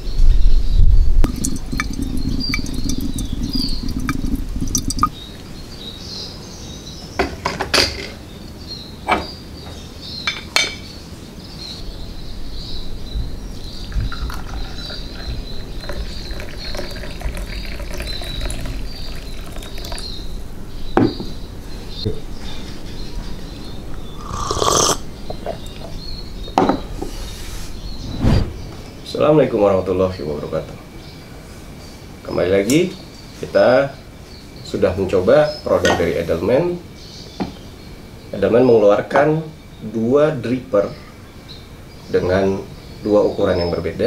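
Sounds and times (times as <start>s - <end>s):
coffee pouring over ice: 1.3s - 5.1s, 14.0s - 20.2s.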